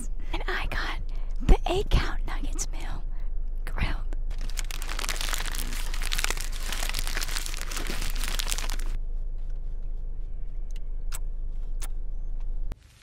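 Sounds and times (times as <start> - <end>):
paper bag being crumpled: 4.3 - 9.0.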